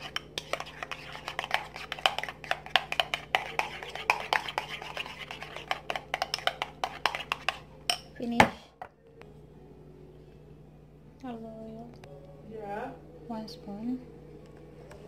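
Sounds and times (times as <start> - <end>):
utensil scraping ceramic bowl: 0.0 - 8.1.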